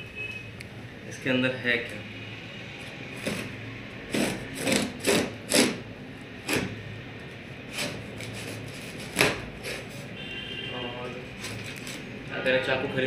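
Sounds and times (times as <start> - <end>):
scissors slitting packing tape: 4.1 - 5.8, 7.7 - 10.0.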